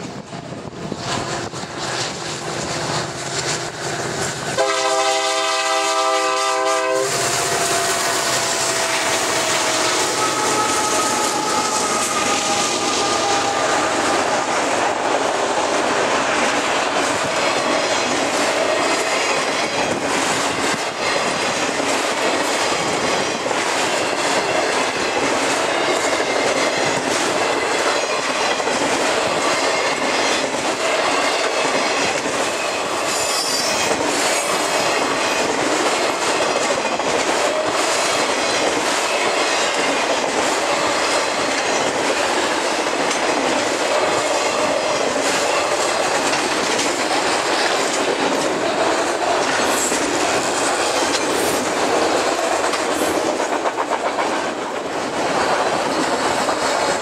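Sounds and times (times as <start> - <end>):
freight train rumbling past: 0.0 - 57.0
wheel squeal: 32.6 - 33.9.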